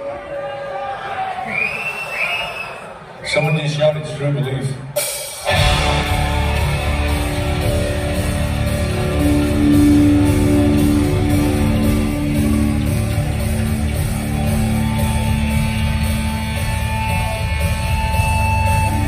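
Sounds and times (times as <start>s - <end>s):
drum kit: 4.9s - 19.0s
distorted electric guitars: 5.4s - 19.0s
bass guitar: 5.5s - 19.0s.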